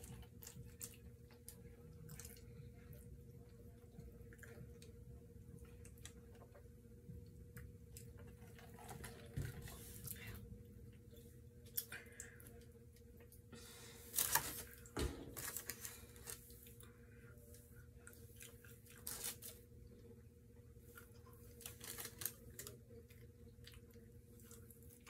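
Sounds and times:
faint steady hum: 0.0s - 25.0s
food packaging rustling and clicking: 14.2s - 16.8s, 21.4s - 22.8s.

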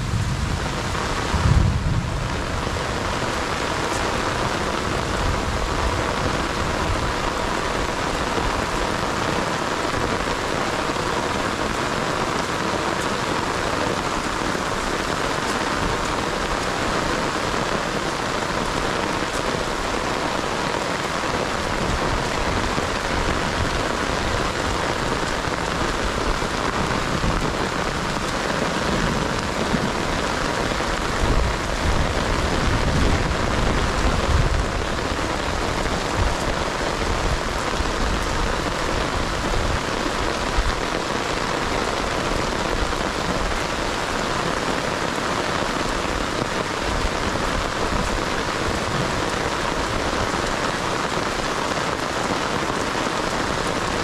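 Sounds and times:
low rumble: 0.0s - 2.8s
heavy rain on standing water: 0.0s - 54.0s.

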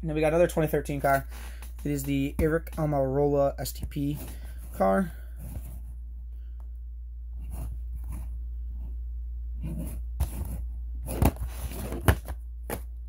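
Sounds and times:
steady low hum: 0.0s - 13.0s
box rustling in hand: 9.7s - 12.8s.

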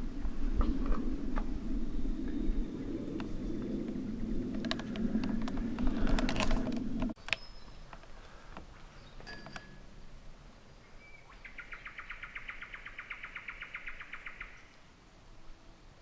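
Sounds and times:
steady low rumble: 0.0s - 7.2s
forest ambience: 0.0s - 16.0s.

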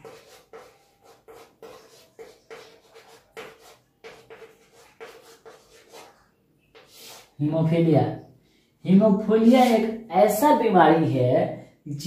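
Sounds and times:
chalk scratching on blackboard: 0.0s - 7.4s, 9.5s - 9.9s.

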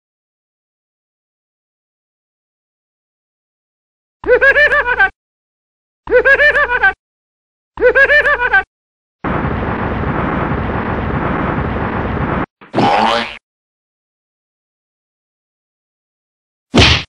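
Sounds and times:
explosion-like rush of noise: 9.2s - 12.5s.

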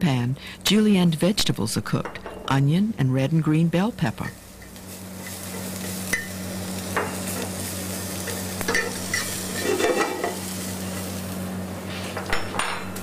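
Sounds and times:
vegetables sizzling in a frying pan: 3.3s - 13.0s
metal utensil scraping a pan: 8.2s - 10.4s.

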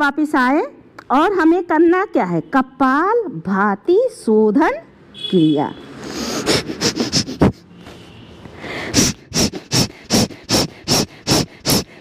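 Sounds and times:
forceful nasal exhalations: 6.0s - 8.0s, 8.6s - 12.0s.

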